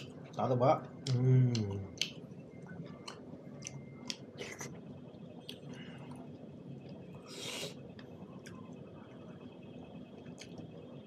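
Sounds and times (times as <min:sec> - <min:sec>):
wet chewing: 0:02.8 - 0:04.8.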